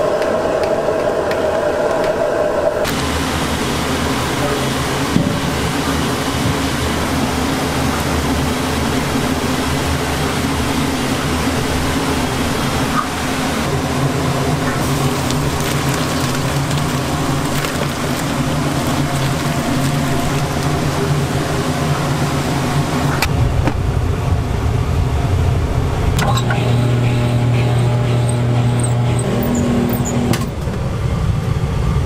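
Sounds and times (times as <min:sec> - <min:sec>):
broth boiling: 0:00.0 - 0:30.5
gas burner roaring: 0:00.0 - 0:32.0
kitchen ventilation hum: 0:00.0 - 0:32.0.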